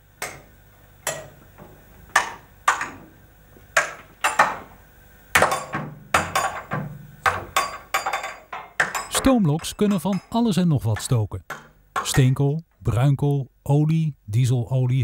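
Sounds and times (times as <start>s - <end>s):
metallic knocks and clangs: 5.4s - 12.2s.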